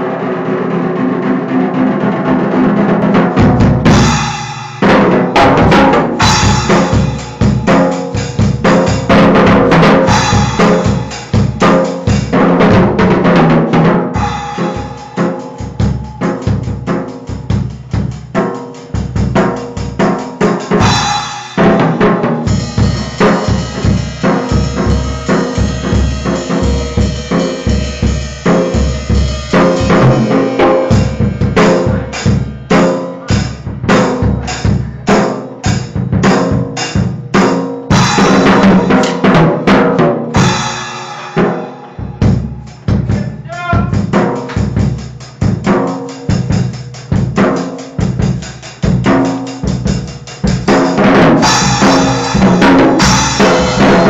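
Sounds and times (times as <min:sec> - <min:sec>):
drum kit playing: 0:00.0 - 0:54.0
cymbals ringing: 0:03.9 - 0:09.2, 0:10.0 - 0:12.0, 0:14.2 - 0:19.1, 0:22.5 - 0:33.6, 0:40.4 - 0:43.2, 0:51.4 - 0:54.0.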